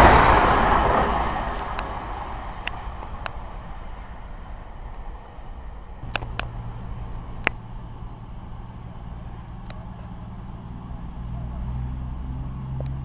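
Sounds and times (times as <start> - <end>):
diesel train engine drone: 0.0 - 13.0
sharp clicks: 6.0 - 8.7, 9.5 - 10.2.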